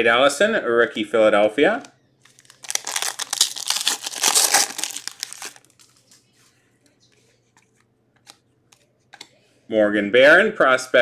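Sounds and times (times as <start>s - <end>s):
card pack wrapper crinkling: 2.2s - 6.2s.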